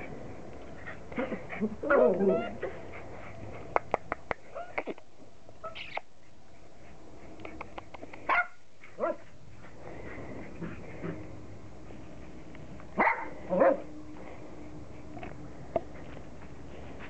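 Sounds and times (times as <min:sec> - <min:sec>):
puppies yipping and barking: 0:01.2 - 0:03.1.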